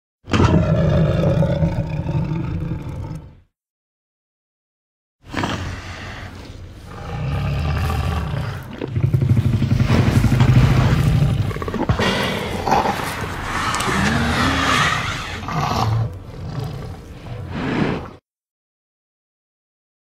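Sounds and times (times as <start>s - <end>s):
dinosaur roars: 0.3s - 3.5s, 5.3s - 18.2s
rising-and-falling cry: 11.9s - 16.0s.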